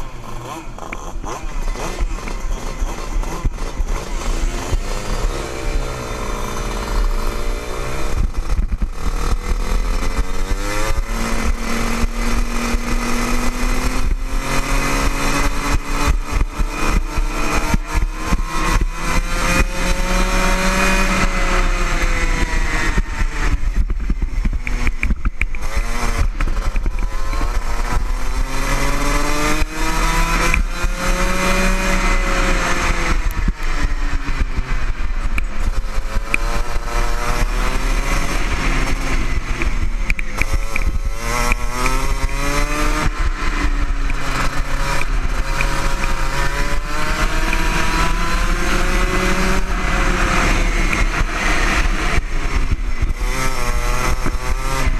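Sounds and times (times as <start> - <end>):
racing kart engine: 0.0 - 54.9.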